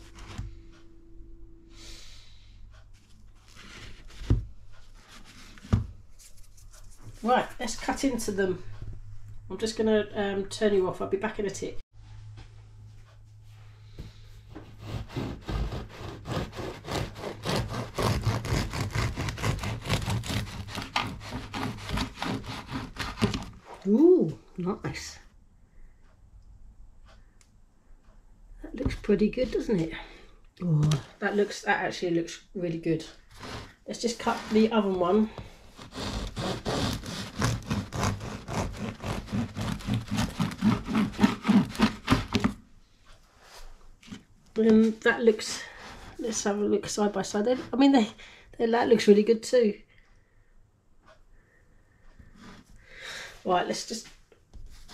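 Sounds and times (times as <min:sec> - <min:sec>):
knife sawing through bread crust: 0:14.6 - 0:23.7, 0:33.3 - 0:42.6.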